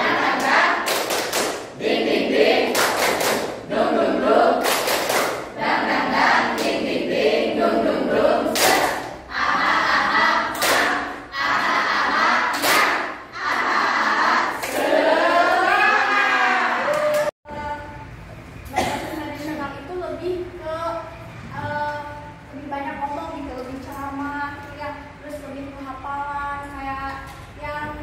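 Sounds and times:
girls singing in unison: 0.0 - 4.7, 5.5 - 16.2
hands clapping: 0.4 - 1.7, 2.7 - 3.6, 4.6 - 5.4, 8.6 - 9.2, 10.5 - 11.0, 12.5 - 13.7.

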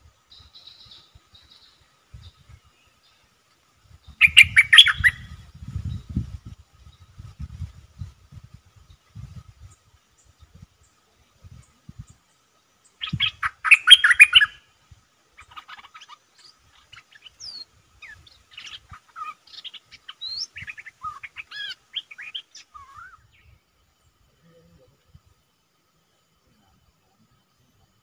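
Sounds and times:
songbird chirping and whistling: 4.0 - 7.3, 12.9 - 14.6, 15.4 - 23.6.

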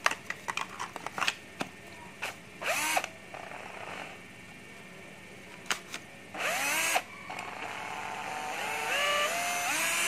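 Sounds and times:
drill motor whining: 2.6 - 4.1, 6.4 - 10.0.

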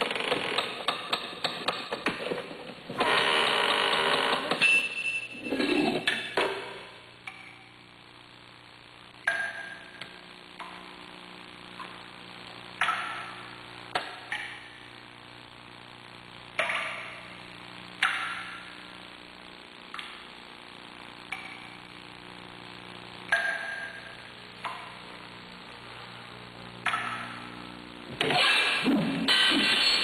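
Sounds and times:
steady low hum: 4.8 - 30.0.

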